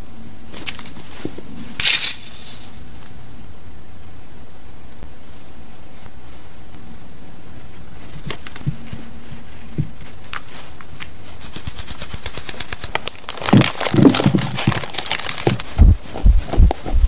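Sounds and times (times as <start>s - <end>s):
steady hiss: 0.0s - 17.0s
baking parchment crinkling: 7.8s - 17.0s.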